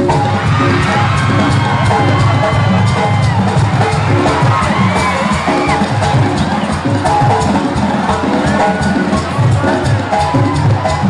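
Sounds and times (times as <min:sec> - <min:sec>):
brass band music: 0:00.0 - 0:11.0
crowd noise: 0:00.0 - 0:11.0
steady drum beat: 0:00.0 - 0:11.0.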